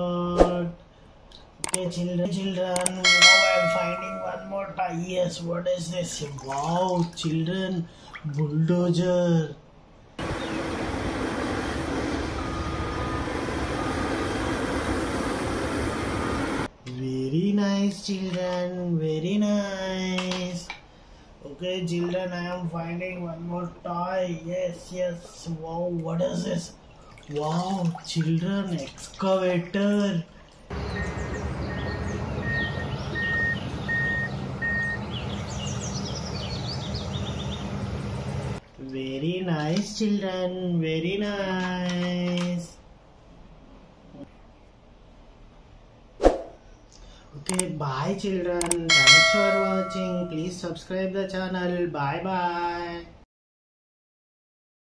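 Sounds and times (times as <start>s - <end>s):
warning alarm beeping: 2.8s - 4.8s, 30.9s - 35.1s, 48.9s - 50.4s
wheel loader diesel engine: 10.2s - 16.7s, 30.7s - 38.6s.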